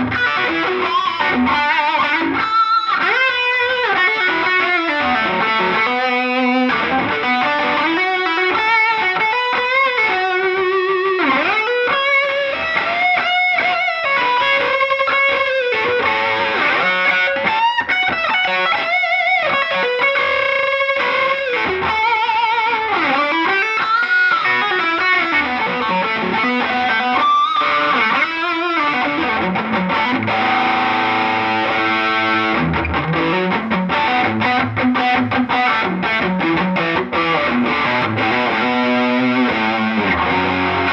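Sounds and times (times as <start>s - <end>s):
distorted electric guitar lead: 0.0s - 40.9s
held guitar chord: 29.1s - 40.9s.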